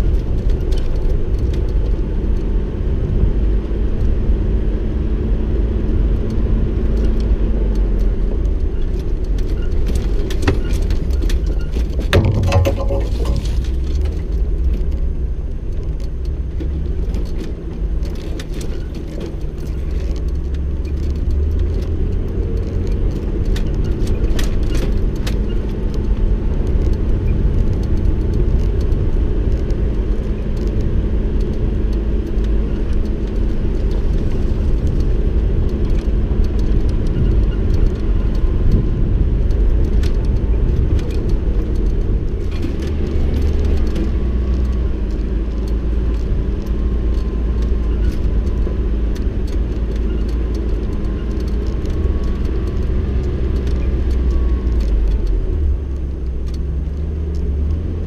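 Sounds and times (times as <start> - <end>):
vehicle engine and tyre rumble: 0.0 - 58.0
rattles and clicks: 5.9 - 58.0
loud clatter: 11.6 - 14.2.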